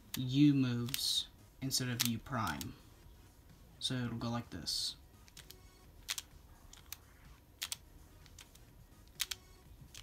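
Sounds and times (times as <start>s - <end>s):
plastic puzzle turning clicks: 5.3s - 7.0s, 7.6s - 10.0s.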